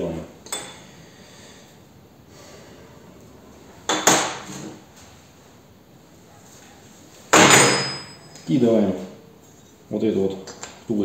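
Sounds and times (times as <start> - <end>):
metallic clatter of metal parts: 7.3 - 8.5.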